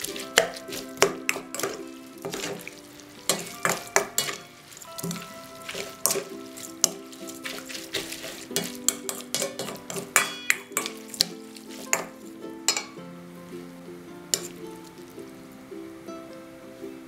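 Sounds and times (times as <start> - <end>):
spoon clinking in metal bowl: 0.0 - 13.0, 14.3 - 14.9
soft background music: 0.0 - 17.0.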